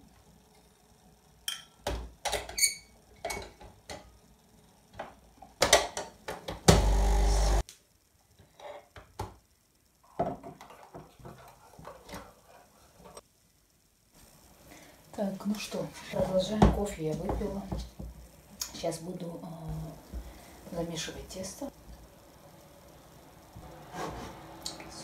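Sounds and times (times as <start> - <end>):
coffee machine pump buzzing: 6.7 - 7.6.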